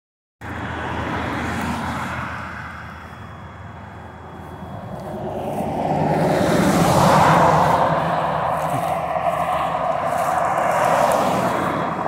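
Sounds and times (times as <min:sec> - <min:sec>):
car tyre and engine noise: 0:00.4 - 0:12.0.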